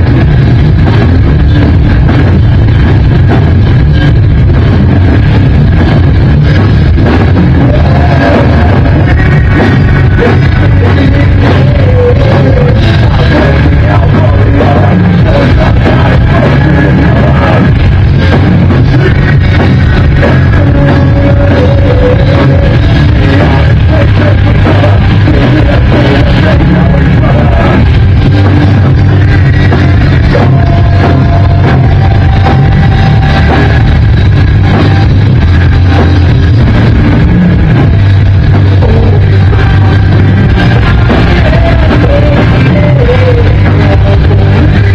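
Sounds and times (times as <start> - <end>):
bass guitar: 0.0 - 44.9
drums: 0.0 - 44.9
guitar: 0.0 - 44.9
person singing: 7.4 - 34.0, 37.9 - 44.9.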